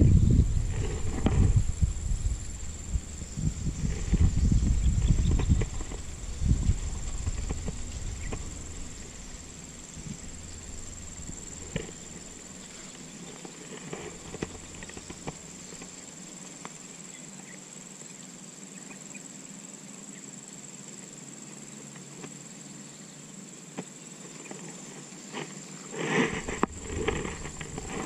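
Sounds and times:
high-pitched whine: 0.0s - 17.8s, 26.3s - 28.0s.

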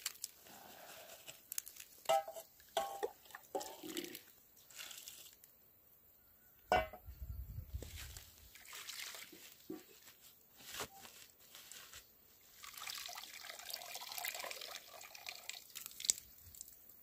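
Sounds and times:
metal clank: 6.7s - 7.0s
cloth rustling: 7.8s - 12.7s.

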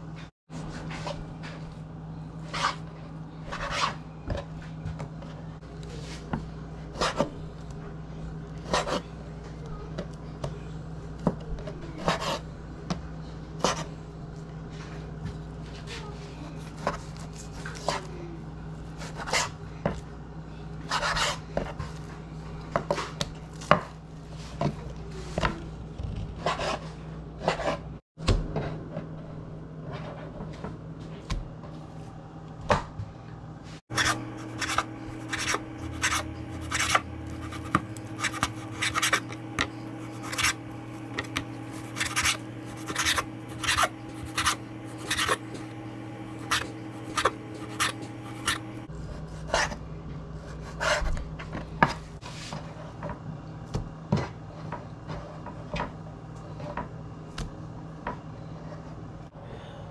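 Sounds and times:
low steady hum: 28.2s - 59.9s.

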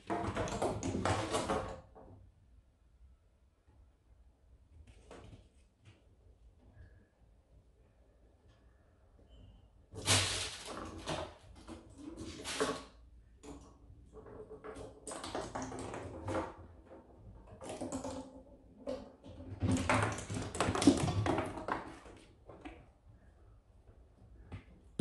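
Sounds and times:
pine cone rolling on wooden boards: 10.6s - 22.8s.

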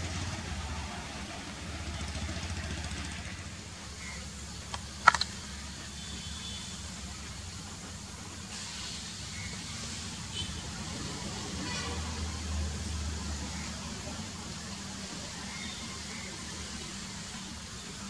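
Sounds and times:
distant locomotive engine humming: 0.0s - 18.0s
sharp click: 4.7s - 5.3s.

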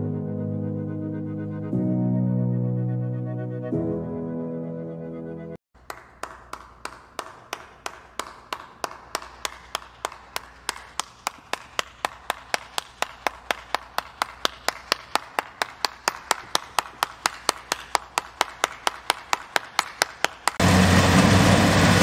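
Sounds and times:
person clapping hands slowly: 5.8s - 20.6s.

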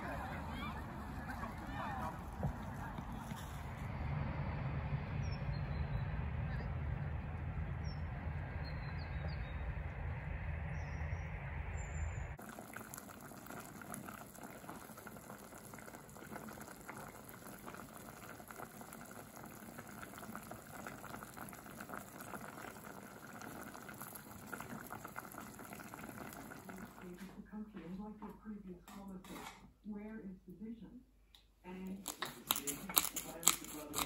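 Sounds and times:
wind rumble on microphone: 0.8s - 12.4s
soup simmering and bubbling: 12.4s - 27.2s.

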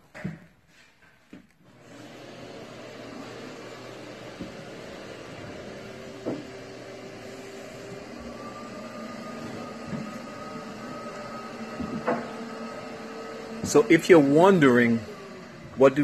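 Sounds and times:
machine hum with whining tones: 1.7s - 16.0s
soft knocks: 6.2s - 6.6s.

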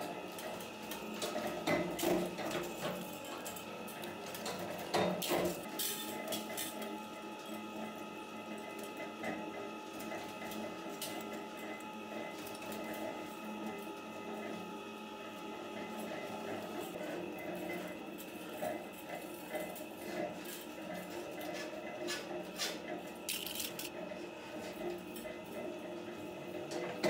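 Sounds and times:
metal parts clinking: 23.3s - 23.9s.

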